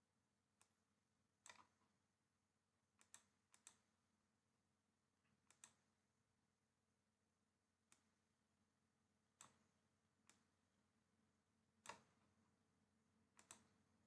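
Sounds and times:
faint computer mouse clicks: 1.4 - 1.8, 3.0 - 3.8, 5.2 - 5.8, 9.4 - 10.5, 11.8 - 12.2, 13.4 - 13.8.

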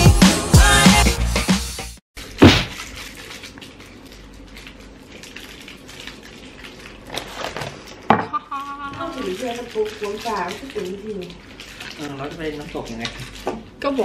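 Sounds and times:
music: 0.0 - 2.0
loud thump: 2.4 - 2.8.

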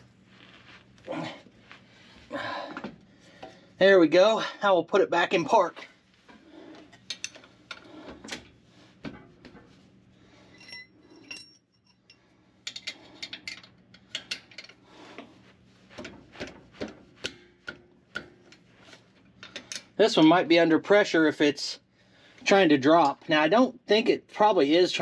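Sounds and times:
wrench clinking on bolts: 10.5 - 14.7.

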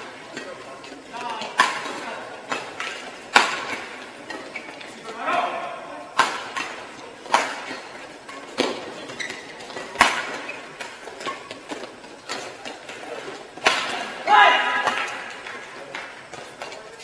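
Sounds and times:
rackets smacking shuttlecock: 0.0 - 5.1, 6.1 - 17.0
shoe squeaks: 8.3 - 11.7.

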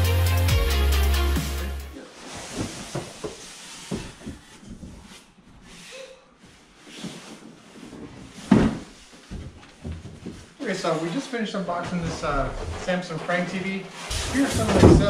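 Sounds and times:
cardboard scraping and rustling: 2.1 - 4.1.

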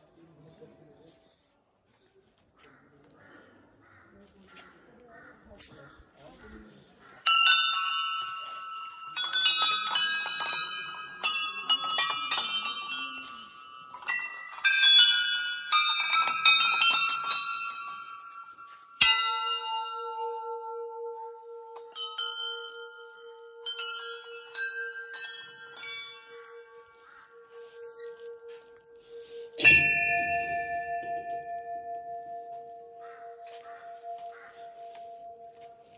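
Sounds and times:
small brass bells jangling: 7.2 - 20.5, 21.6 - 28.4
large bell struck and humming: 7.3 - 35.9.

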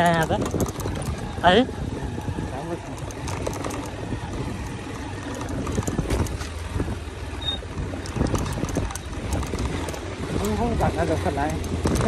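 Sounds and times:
knocks and rattles from bumps: 0.0 - 1.4, 2.8 - 6.6, 7.7 - 10.2, 11.5 - 12.0
motorcycle engine rumble: 0.0 - 12.0.

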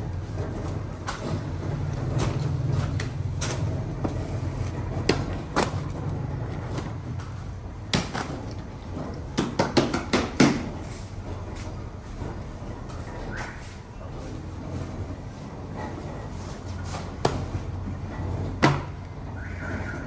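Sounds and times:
sharp knocks and clatters: 0.2 - 13.1.

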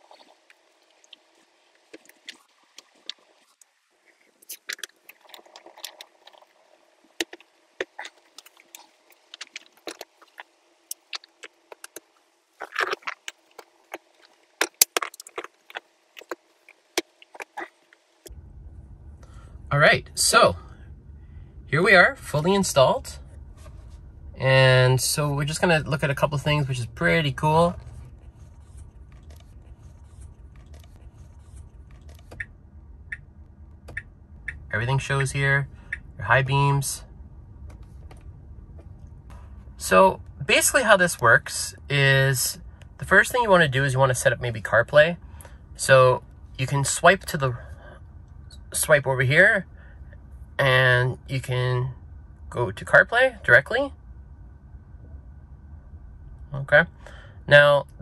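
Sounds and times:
faint low cabin hum: 0.0 - 58.0
faint clicks and rustling: 27.8 - 32.5.

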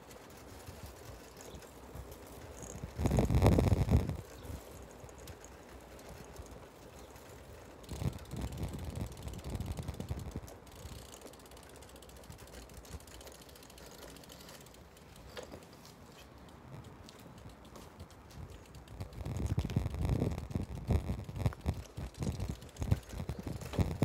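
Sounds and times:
wind and road rumble: 0.0 - 24.0
bicycle freewheel ticking: 0.1 - 24.0.

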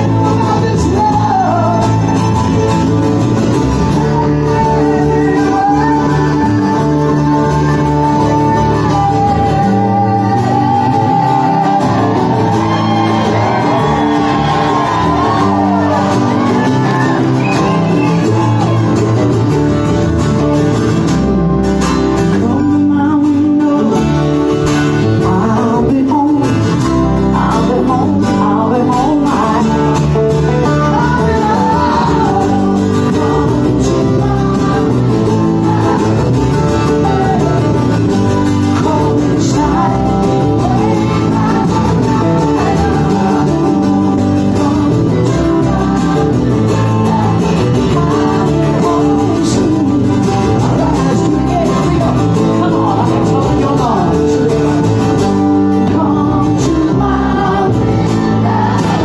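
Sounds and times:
lead voice singing: 0.0 - 59.0
plucked upright bass: 0.0 - 59.0
second guitar: 0.0 - 59.0
strummed acoustic guitar: 0.0 - 59.0.

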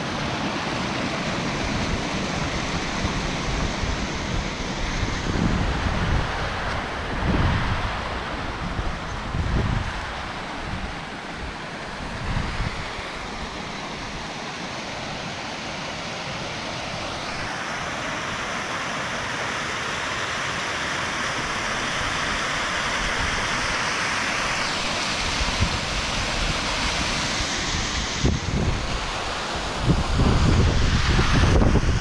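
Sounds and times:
waterfall rushing: 0.0 - 32.0
wind gusts on microphone: 1.0 - 14.3, 24.4 - 32.0.

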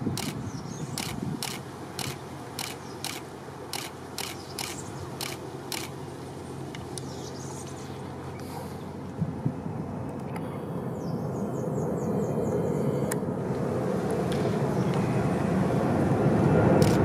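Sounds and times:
distant jet engine rumble: 0.0 - 17.0
sharp regular clicks: 0.2 - 0.4, 1.0 - 6.0, 16.8 - 17.0.

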